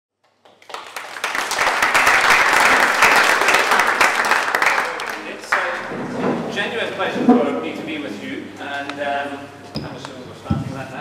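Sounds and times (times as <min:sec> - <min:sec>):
audience applauding: 0:00.2 - 0:06.0.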